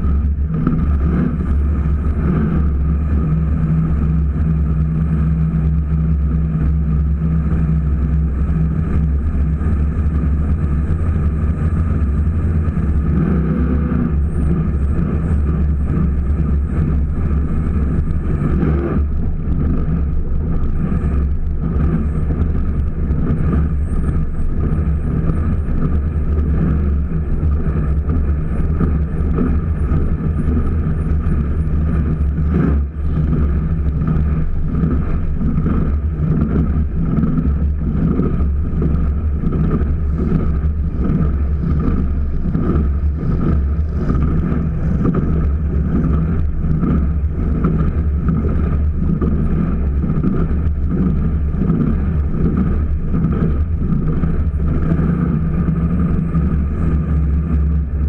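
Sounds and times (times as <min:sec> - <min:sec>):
boat engine running at speed: 0:00.0 - 0:58.0.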